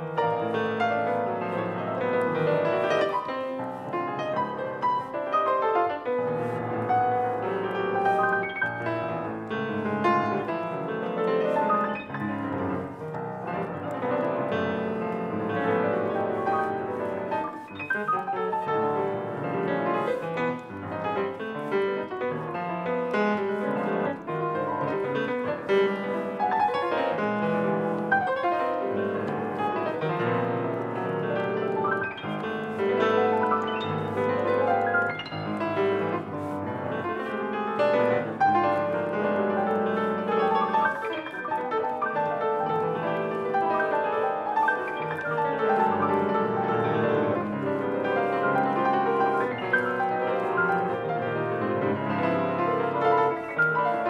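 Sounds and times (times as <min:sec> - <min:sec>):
grand piano playing quick notes: 0:00.0 - 0:54.0.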